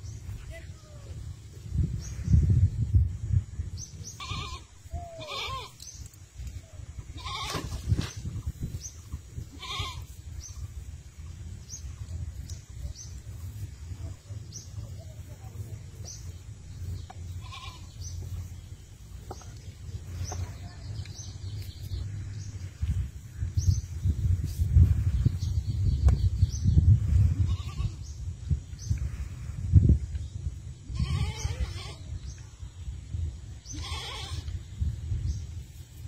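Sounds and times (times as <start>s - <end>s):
farm animal bleating: 4.1s - 5.8s, 7.1s - 7.7s, 9.4s - 10.2s, 17.3s - 18.1s, 27.3s - 28.1s, 30.9s - 32.2s, 33.6s - 34.6s.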